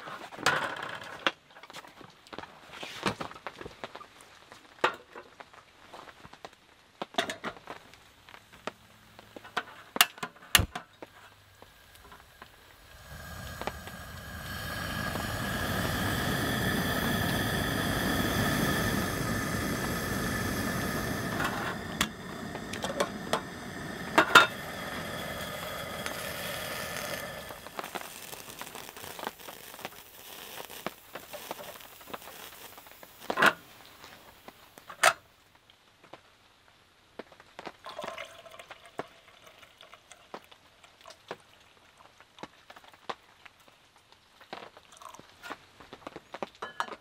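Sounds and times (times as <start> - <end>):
gas stove hissing: 7.7 - 35.2.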